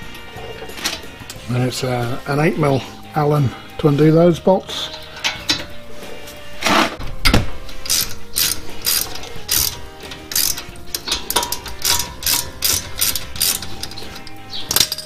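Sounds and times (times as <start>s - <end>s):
hand ratchet clicking: 7.7s - 15.0s.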